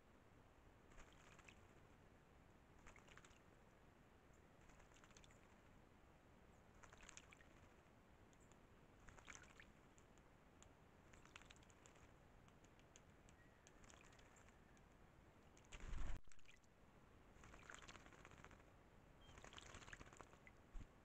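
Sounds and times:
bird splashing water: 0:00.8 - 0:01.8, 0:02.7 - 0:03.6, 0:04.6 - 0:05.7, 0:06.7 - 0:07.8, 0:08.5 - 0:10.2, 0:11.0 - 0:14.8, 0:15.6 - 0:16.7, 0:17.3 - 0:20.7.

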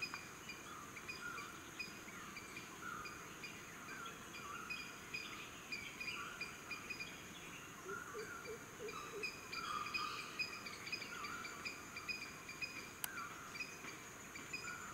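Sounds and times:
birds chirping and warbling: 0:00.0 - 0:14.9
high insect drone: 0:00.0 - 0:14.9.

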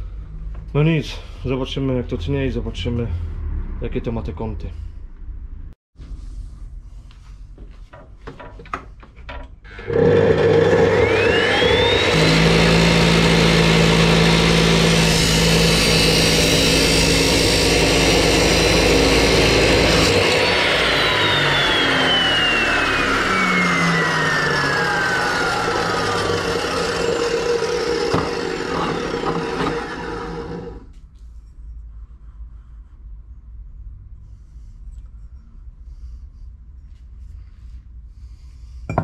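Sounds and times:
cut-off saw grinding metal: 0:09.7 - 0:30.9
motor winding down whine: 0:09.7 - 0:30.9.

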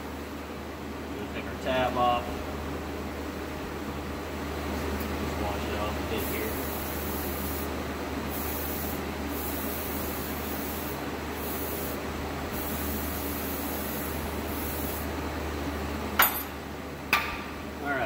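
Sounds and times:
aerosol spray hissing: 0:06.2 - 0:07.7, 0:08.3 - 0:15.1.

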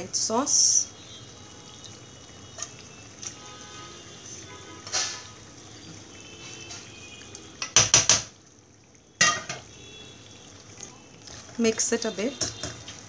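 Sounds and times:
pan and spatula clattering: 0:07.6 - 0:08.4, 0:09.2 - 0:09.7, 0:12.4 - 0:13.0
pan set down on stove: 0:09.2 - 0:09.7.

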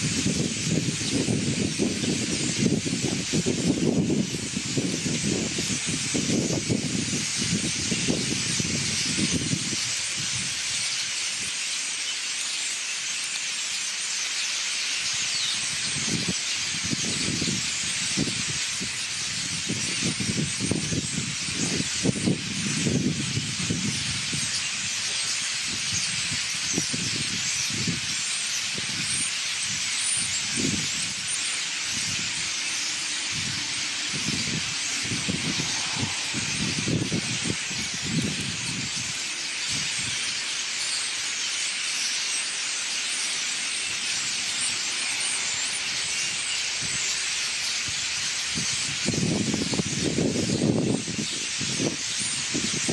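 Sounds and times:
wind buffeting microphone: 0:00.0 - 0:10.7, 0:15.7 - 0:40.3, 0:47.8 - 0:52.9
flock of songbirds chattering: 0:00.0 - 0:52.9.

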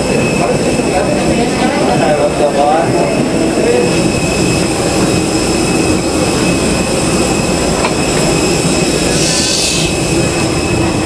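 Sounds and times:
high whining engine tones: 0:00.0 - 0:11.0
jet engine rush: 0:00.0 - 0:11.0.

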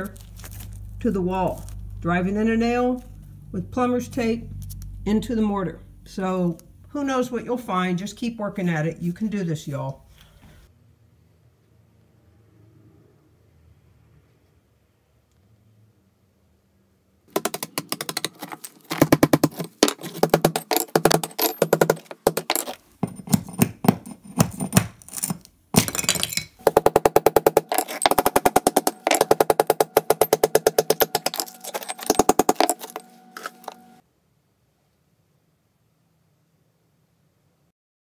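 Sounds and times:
hammer striking metal chisel: 0:17.3 - 0:33.9.

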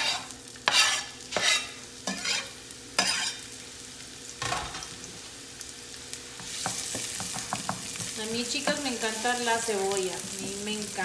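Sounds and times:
onion sizzling in oil: 0:00.0 - 0:11.0.

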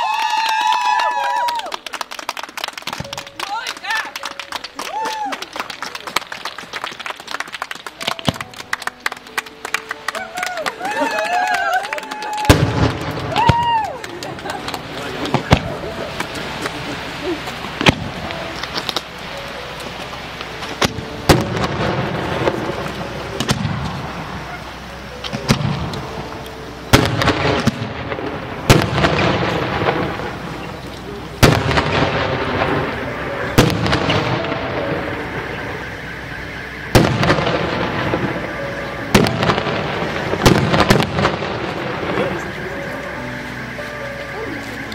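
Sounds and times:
fireworks bangs: 0:12.2 - 0:43.8.

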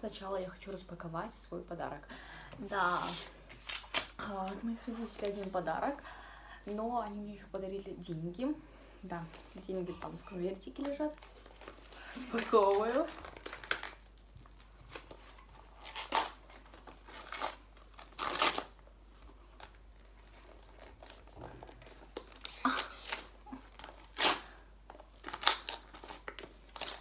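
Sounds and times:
paper crinkling: 0:02.9 - 0:06.0, 0:09.3 - 0:27.0
wrapping paper ripping: 0:10.8 - 0:27.0.

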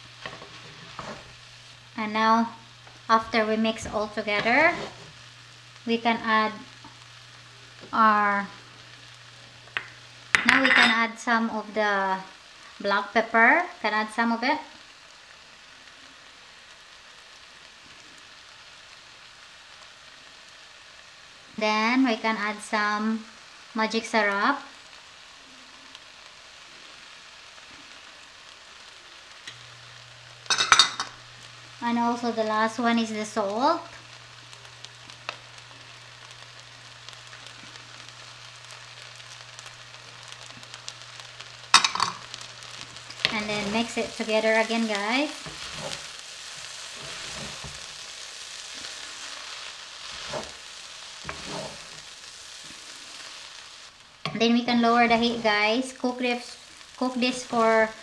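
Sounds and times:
pot of noodles sizzling: 0:00.0 - 0:58.0
wooden spoon strokes: 0:04.4 - 0:05.2, 0:43.0 - 0:53.8.

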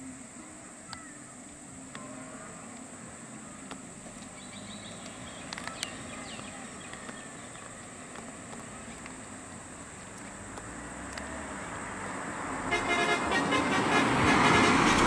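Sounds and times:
idling vehicle engines: 0:00.0 - 0:14.1
constant high hiss: 0:00.0 - 0:15.0.

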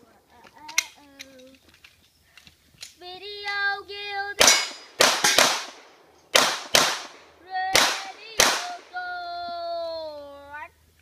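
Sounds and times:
handgun shots: 0:04.4 - 0:08.8.

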